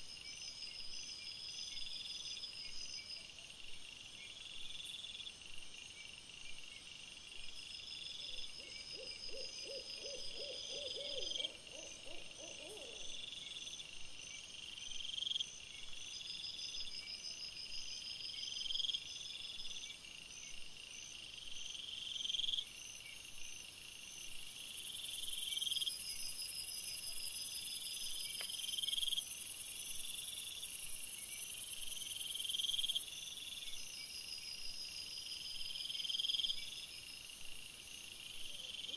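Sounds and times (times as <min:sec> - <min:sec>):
crickets chirping: 0:00.0 - 0:38.9
high insect hiss: 0:09.4 - 0:38.9.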